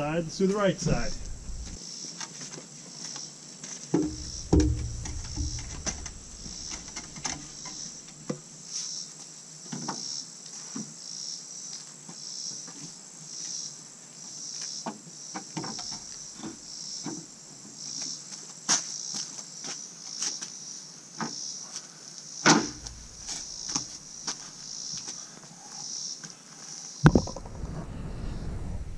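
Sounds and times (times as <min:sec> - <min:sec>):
steady high whine: 0:00.0 - 0:01.8, 0:04.0 - 0:07.7
insects calling in pulses: 0:00.0 - 0:02.1, 0:04.0 - 0:08.1, 0:13.3 - 0:17.1, 0:18.9 - 0:27.7
wooden knocks and clatter: 0:00.9 - 0:01.8, 0:04.0 - 0:07.8, 0:22.5 - 0:24.0, 0:27.1 - 0:27.7.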